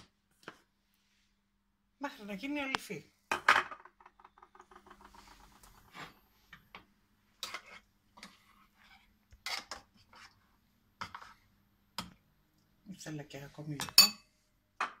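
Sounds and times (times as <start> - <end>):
spoon stirring thick paste: 4.3 - 12.2.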